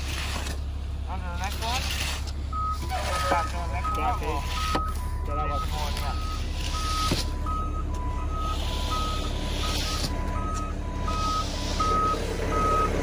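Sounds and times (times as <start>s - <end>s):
truck engine running: 0.0s - 13.0s
two-tone reversing beeper: 2.5s - 13.0s.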